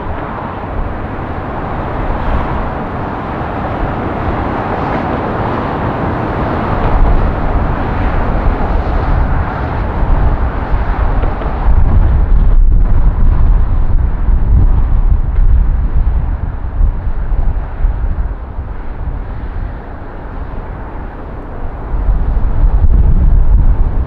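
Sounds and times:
jet engine roar: 0.0s - 24.0s
heavy rumble of touchdown: 5.6s - 24.0s.

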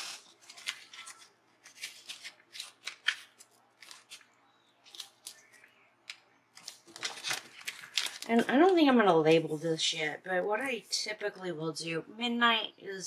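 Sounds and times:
paper ticks and rustles: 0.0s - 4.3s, 4.9s - 9.4s.

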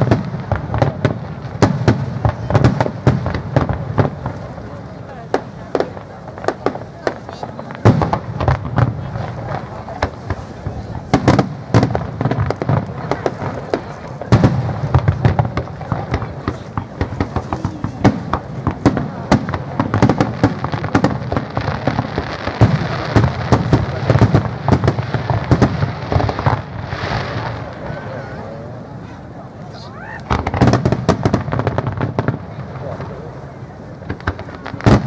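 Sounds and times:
fireworks bursting with echoes: 0.0s - 35.0s.

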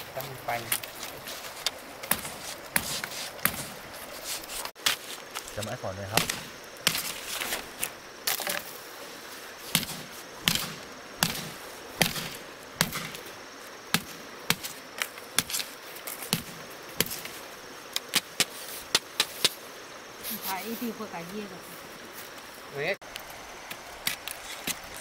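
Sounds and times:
blade chopping into wood: 6.1s - 7.2s, 9.8s - 13.2s.

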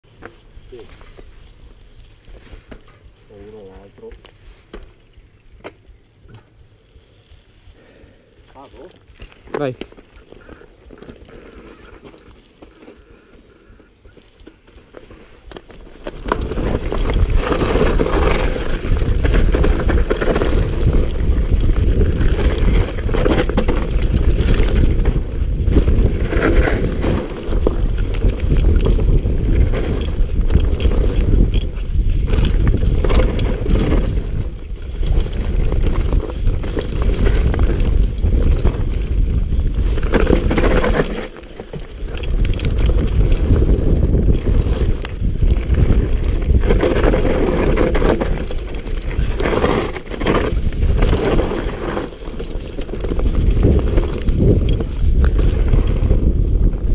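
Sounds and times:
knobbly tyres rolling over dirt: 0.1s - 56.9s
bike knocks and rattles: 2.6s - 6.6s, 14.1s - 56.9s
wind buffeting microphone: 16.2s - 41.1s, 41.7s - 56.9s.

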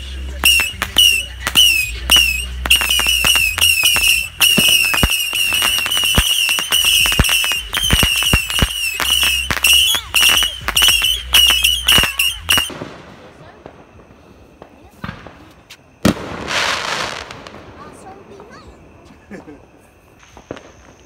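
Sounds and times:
bottle rockets whistling: 0.0s - 12.7s
firework cracks and pops: 0.0s - 18.9s, 20.1s - 21.0s.

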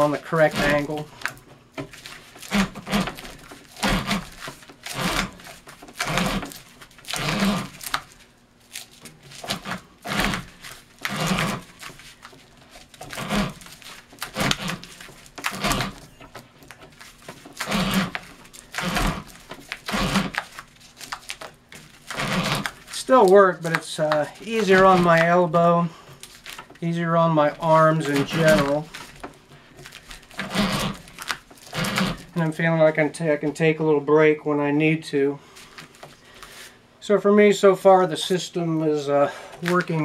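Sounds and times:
string rubbing scrape on shell: 0.0s - 8.2s, 9.3s - 16.1s, 17.0s - 29.2s, 29.8s - 32.5s.

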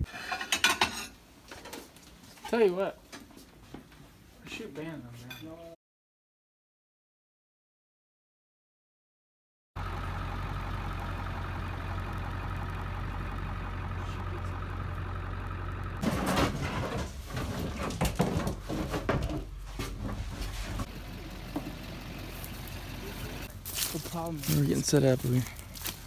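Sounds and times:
vehicle engine idling: 9.8s - 16.0s, 19.4s - 26.0s
decoys clattering and knocking: 16.0s - 20.9s.

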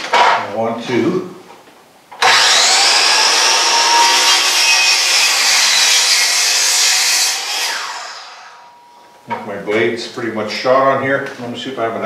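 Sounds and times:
miter saw cutting wood: 2.2s - 8.7s.

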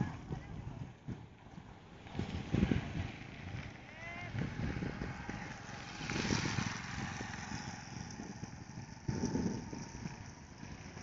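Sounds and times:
wind noise on microphone: 0.0s - 11.0s
scooter engine running: 4.4s - 11.0s.

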